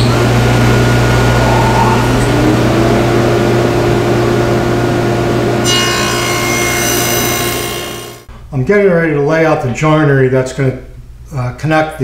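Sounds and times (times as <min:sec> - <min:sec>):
table saw running: 0:00.0 - 0:08.3.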